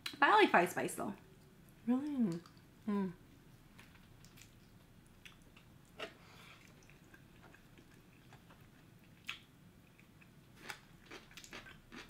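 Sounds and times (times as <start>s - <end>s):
chewing: 3.8s - 12.0s.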